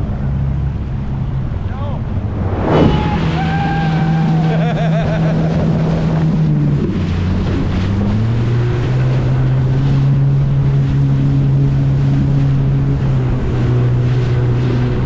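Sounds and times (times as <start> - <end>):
wind buffeting microphone: 1.2 - 8.1
jet ski engine running: 3.5 - 15.0.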